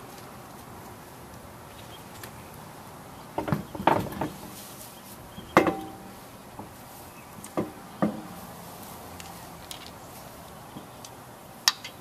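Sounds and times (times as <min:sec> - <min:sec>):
lug nuts clattering: 0:05.5 - 0:06.8.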